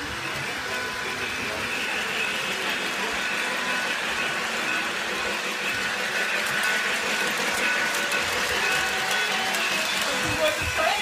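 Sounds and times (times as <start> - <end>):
model train motor whir: 0.0 - 11.0.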